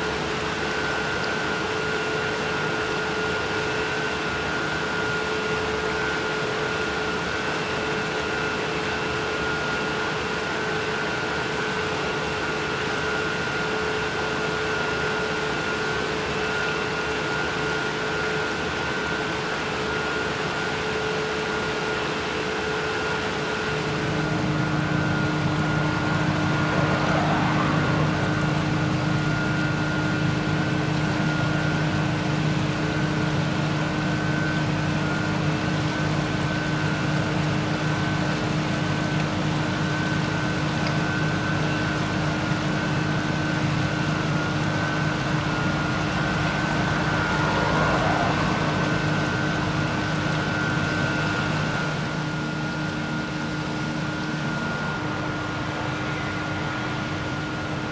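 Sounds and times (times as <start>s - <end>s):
turbine hum and whine: 0.0s - 57.9s
water churning: 21.5s - 57.9s.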